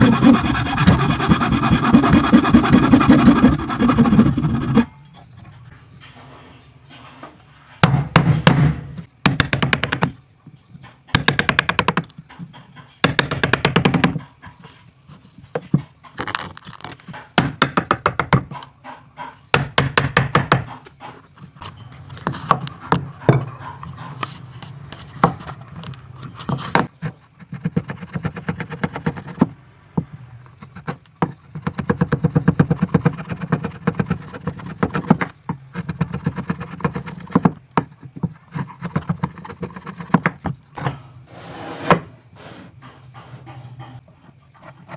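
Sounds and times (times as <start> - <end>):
chisel cutting wood: 0.0 - 4.9
chisel scraping strokes: 0.0 - 4.9, 41.3 - 44.9.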